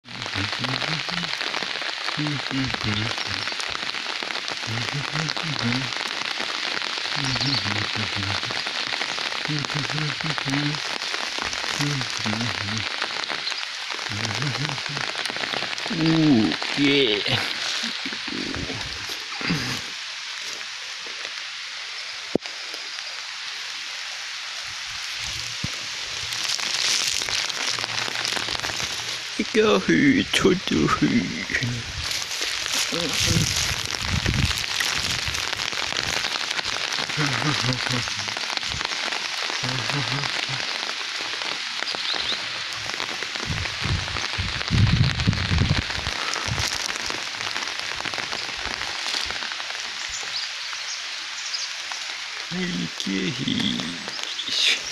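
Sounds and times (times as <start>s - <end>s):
rain on fabric umbrella: 0.0s - 54.9s
dripping ticks: 25.0s - 29.5s, 30.7s - 50.8s
low rumble: 43.4s - 45.9s.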